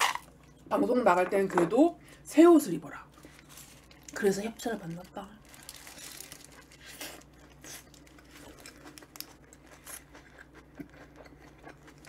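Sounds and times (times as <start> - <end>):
paper wrapper crinkling: 3.1 - 9.6
chewing sandwich: 5.6 - 12.0.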